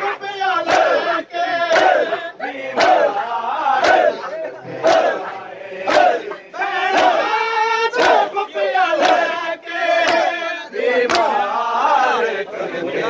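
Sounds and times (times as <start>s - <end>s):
men chanting: 0.0s - 13.0s
men slapping their chests: 0.6s - 7.3s, 7.9s - 11.5s.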